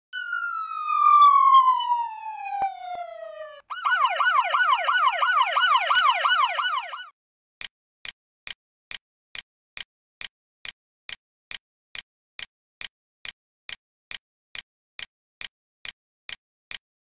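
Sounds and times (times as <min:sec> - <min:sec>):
police siren: 0:00.0 - 0:07.2.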